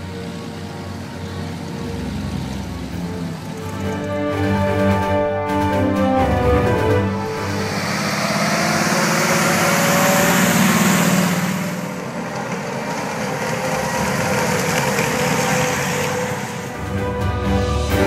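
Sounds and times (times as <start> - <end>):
tracked motorcycle engine: 0.0 - 18.0
car engine driving through mud: 6.2 - 17.2.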